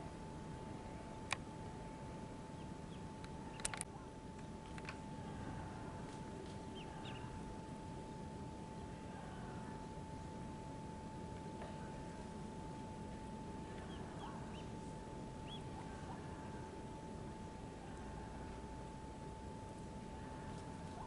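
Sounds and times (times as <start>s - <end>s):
thin steady whine: 0.0s - 21.0s
ducklings peeping: 2.5s - 3.7s, 6.7s - 7.4s, 13.8s - 14.8s, 15.4s - 16.2s
sharp clicks: 3.2s - 5.0s.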